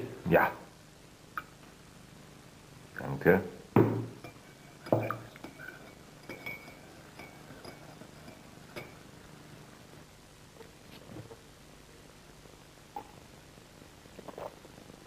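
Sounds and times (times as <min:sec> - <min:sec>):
cups and spoon clinking: 0:03.8 - 0:09.1.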